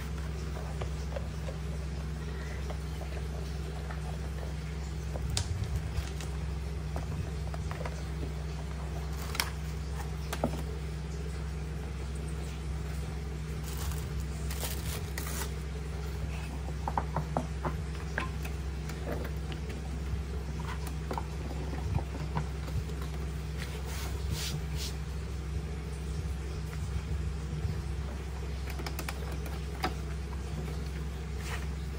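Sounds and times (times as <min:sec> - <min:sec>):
steady low hum: 0:00.0 - 0:31.9
hands brushing over mouse pad: 0:23.6 - 0:25.0.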